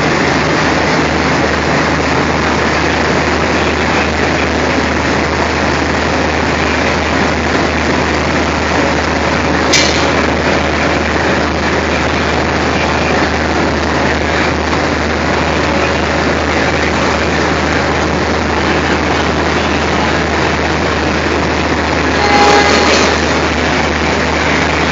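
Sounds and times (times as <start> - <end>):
diesel locomotive engine idling: 0.0 - 24.9
brief sharp high-pitched sound: 22.1 - 23.6.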